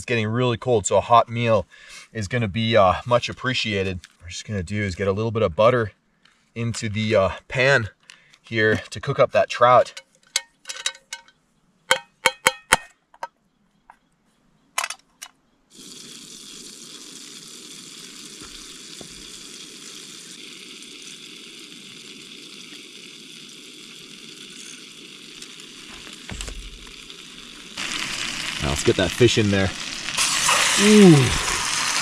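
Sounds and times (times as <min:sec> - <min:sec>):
butter sizzling in a pan: 0:15.7 - 0:32.0
gas burner hiss: 0:15.7 - 0:32.0.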